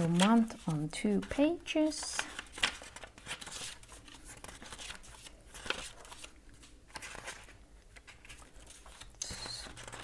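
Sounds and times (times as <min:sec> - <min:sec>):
thin paper pages rustling: 0:00.0 - 0:10.0.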